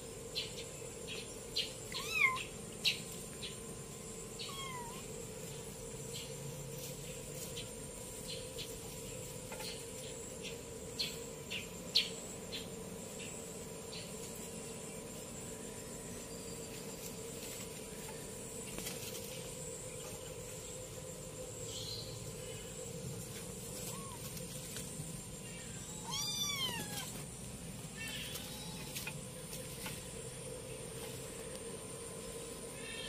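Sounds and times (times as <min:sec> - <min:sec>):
kitten meowing: 0:01.9 - 0:02.5, 0:04.4 - 0:05.0, 0:26.0 - 0:27.1.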